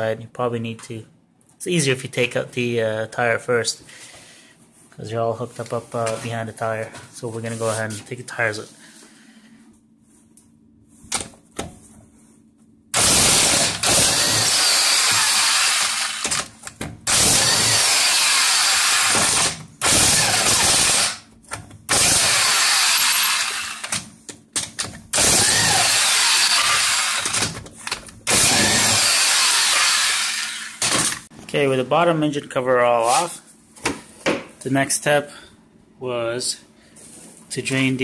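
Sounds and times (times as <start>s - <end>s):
impact wrench hammering: 13.0s - 27.6s, 28.3s - 31.2s.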